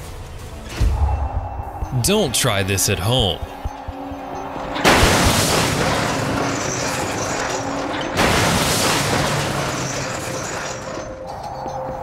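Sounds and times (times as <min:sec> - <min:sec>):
shipping container crashing: 0:04.7 - 0:11.4.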